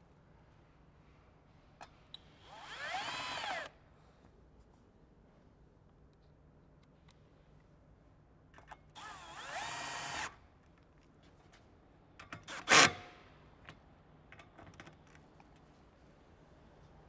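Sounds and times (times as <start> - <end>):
cordless drill whining: 2.2 - 3.7, 9.0 - 10.3.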